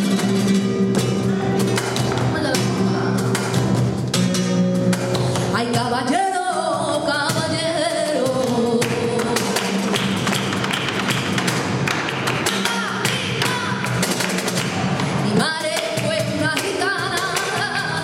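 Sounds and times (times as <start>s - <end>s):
acoustic guitar: 0.0s - 18.0s
person singing: 1.4s - 3.5s, 5.4s - 9.9s, 15.1s - 18.0s
hand-clapping: 8.4s - 17.8s.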